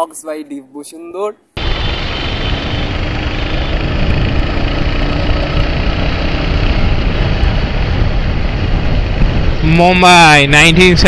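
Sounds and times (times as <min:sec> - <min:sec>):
motorcycle engine running: 0:01.6 - 0:09.7
wind rush: 0:01.6 - 0:11.0.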